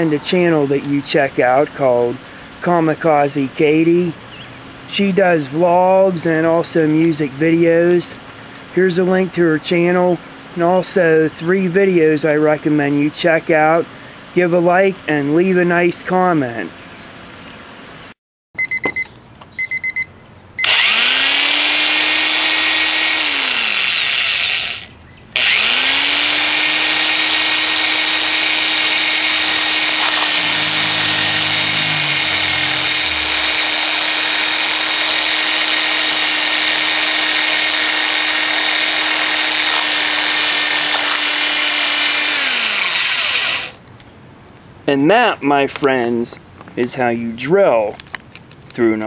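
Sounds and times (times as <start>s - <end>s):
alarm clock beeping: 18.6s - 19.0s, 19.6s - 20.8s
electric drill boring into plastic: 20.6s - 43.8s.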